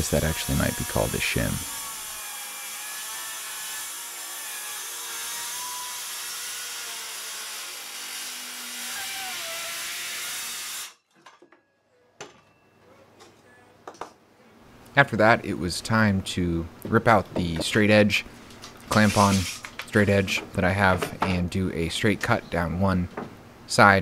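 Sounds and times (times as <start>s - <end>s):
circular saw cutting wood: 0.0s - 11.0s, 18.9s - 20.3s.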